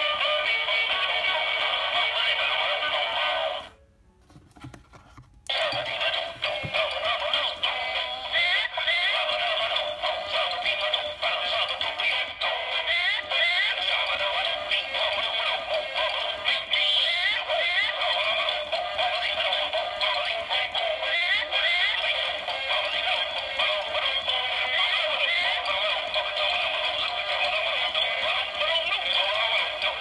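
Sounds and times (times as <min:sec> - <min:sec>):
toy playing tinny electronic song: 0:05.5 - 0:30.0.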